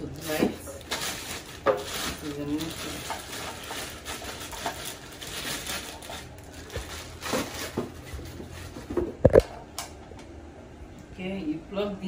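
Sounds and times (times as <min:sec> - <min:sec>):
plastic wrapping crinkling: 0:00.1 - 0:09.4.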